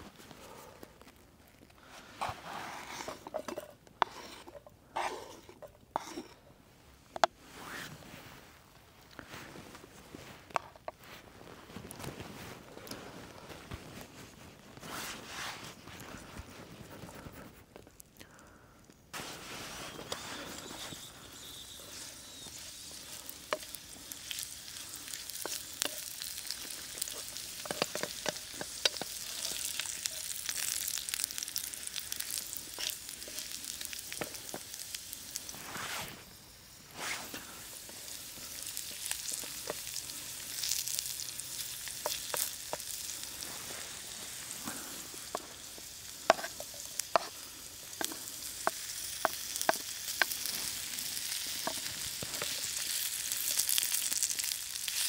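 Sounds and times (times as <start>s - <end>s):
crackles and pops: 0.0s - 2.2s, 7.0s - 55.0s
sizzling in a pan: 0.0s - 6.5s, 19.1s - 55.0s.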